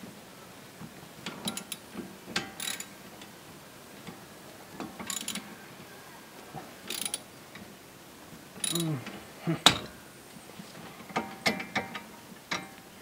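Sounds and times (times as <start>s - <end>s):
socket ratchet clicking: 2.6s - 2.9s, 5.1s - 5.4s, 6.9s - 7.2s, 8.6s - 8.9s.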